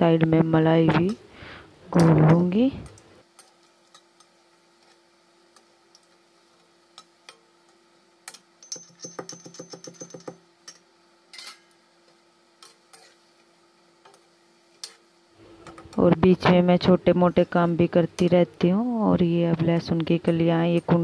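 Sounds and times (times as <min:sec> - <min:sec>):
faint steady hum: 0:00.0 - 0:21.0
food frying in hot oil: 0:03.0 - 0:08.6, 0:10.4 - 0:15.4
metal spoon scraping a pan: 0:12.6 - 0:13.2.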